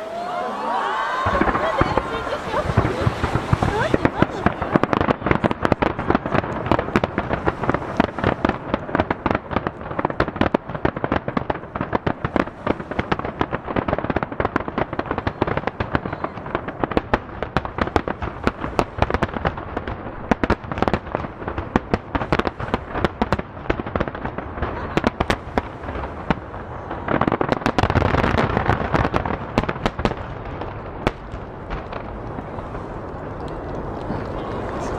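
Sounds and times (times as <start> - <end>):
fireworks bursting: 0.0 - 34.9.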